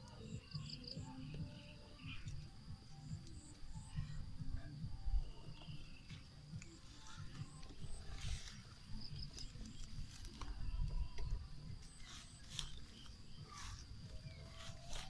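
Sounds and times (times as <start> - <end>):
insect drone: 0.0 - 15.0
leafy vines rustling: 6.0 - 15.0.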